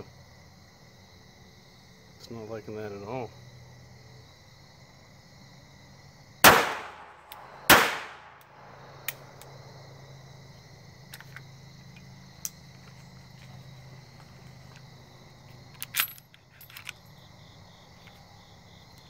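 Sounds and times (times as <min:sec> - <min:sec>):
pistol shots echoing: 0:06.4 - 0:08.6.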